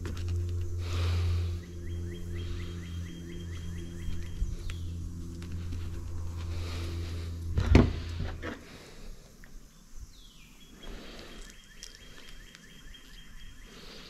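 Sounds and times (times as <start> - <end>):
faint high steady tone: 0.0 - 8.3
low hum: 0.0 - 14.0
loud thump: 7.5 - 8.4.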